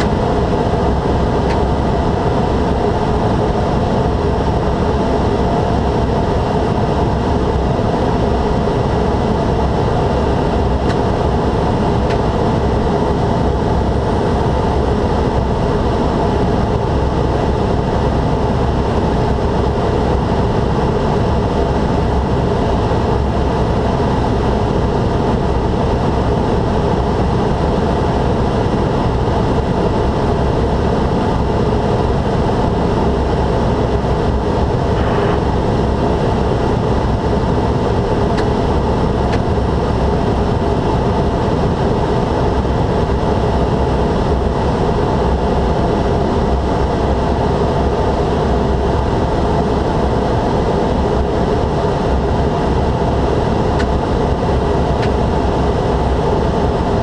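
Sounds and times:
turboprop engine drone: 0.0s - 57.0s.

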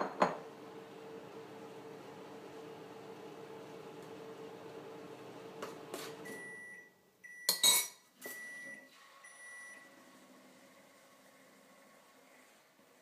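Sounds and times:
kitchenware clinking: 0.0s - 0.4s, 7.5s - 8.4s
appliance hum: 0.0s - 6.8s.

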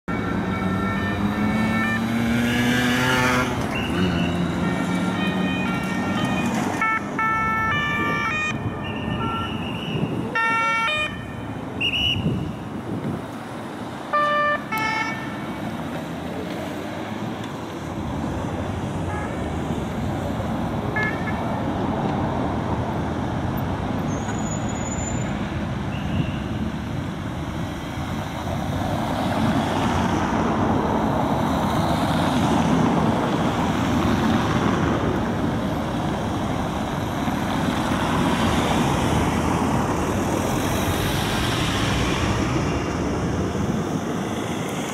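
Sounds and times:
traffic noise: 0.0s - 44.9s
engine revving: 0.2s - 6.7s.

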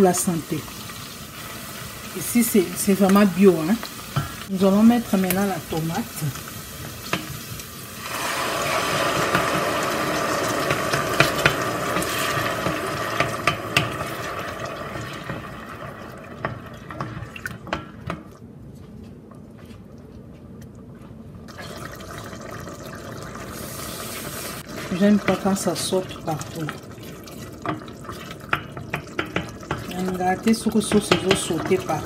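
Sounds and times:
tomatoes sizzling in hot oil: 0.0s - 17.2s, 21.6s - 32.0s
wooden spoon knocking a pot: 10.6s - 14.3s, 16.4s - 18.3s, 27.6s - 32.0s.

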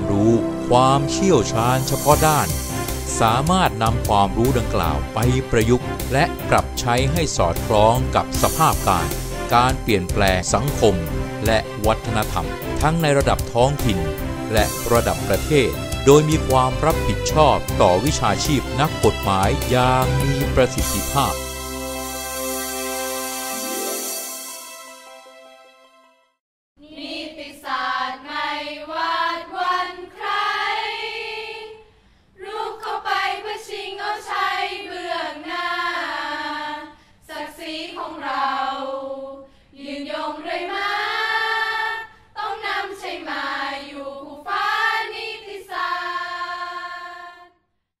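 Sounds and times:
women's choir singing: 26.8s - 47.6s.

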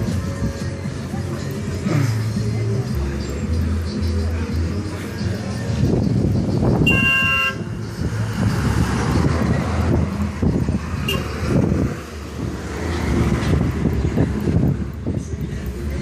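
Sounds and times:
vehicle horn toot: 6.8s - 7.7s, 11.0s - 11.3s.

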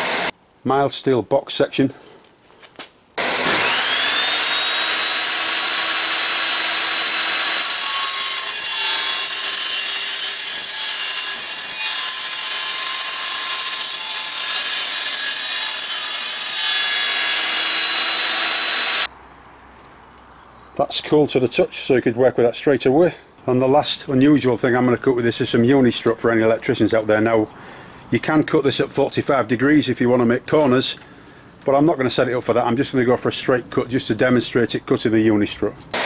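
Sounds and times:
table saw spinning up: 0.0s - 0.3s, 3.2s - 9.0s, 16.2s - 19.1s
saw screeching through steel: 3.2s - 19.1s.

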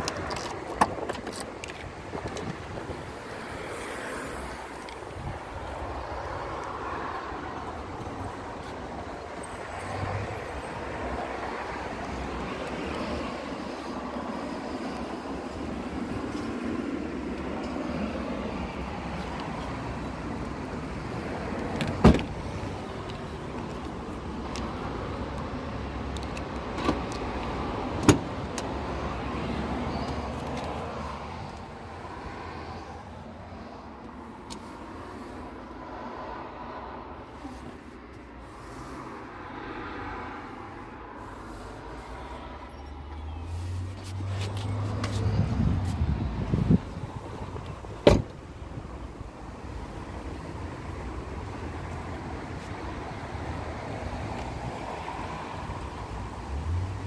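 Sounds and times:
outdoor background noise: 0.0s - 57.0s
car tailgate clunking shut: 21.8s - 22.3s, 48.0s - 48.4s
car door latch clicks: 47.6s - 48.4s.

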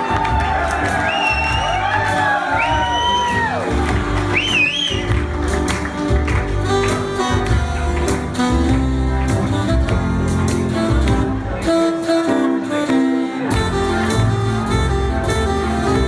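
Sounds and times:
jazz band playing: 0.0s - 16.0s
shrill wavering whistle: 4.3s - 5.1s
saxophones: 6.8s - 16.0s.

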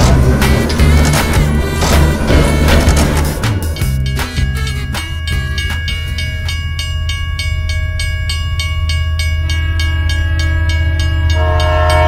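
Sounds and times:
train whistle chord: 11.3s - 12.0s.

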